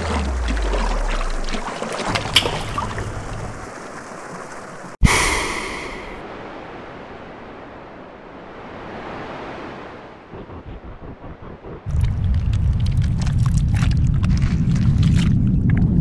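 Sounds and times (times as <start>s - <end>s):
water splashing: 0.0s - 6.2s
rush of air: 5.0s - 6.2s.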